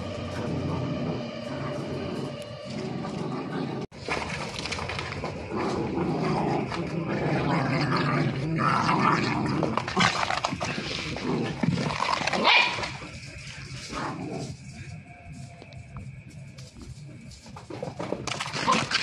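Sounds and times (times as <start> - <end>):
dogs growling while playing: 0.0 - 14.8.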